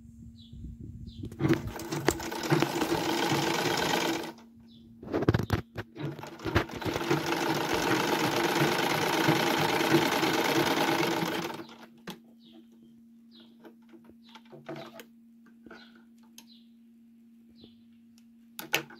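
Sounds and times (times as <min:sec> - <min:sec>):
sewing machine stitching: 0:01.3 - 0:04.4, 0:05.9 - 0:12.0.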